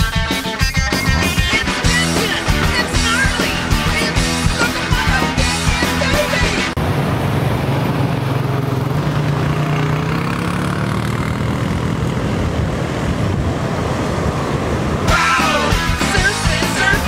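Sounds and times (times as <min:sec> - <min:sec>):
surf: 0:00.0 - 0:06.8, 0:14.9 - 0:17.0
quad bike engines passing: 0:00.9 - 0:17.0
wind: 0:06.7 - 0:17.0.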